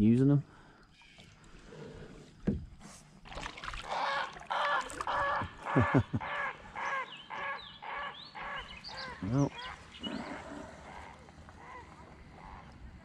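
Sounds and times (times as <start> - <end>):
large bird honking calls: 3.9 - 12.7.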